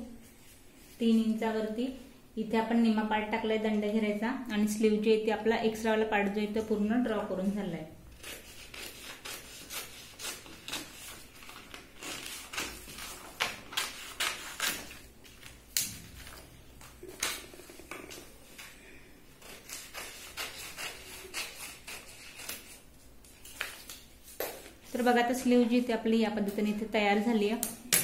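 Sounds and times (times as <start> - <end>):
scissors snipping paper: 8.2 - 15.1, 19.4 - 22.8
paper rustling: 10.2 - 18.8, 20.8 - 25.1.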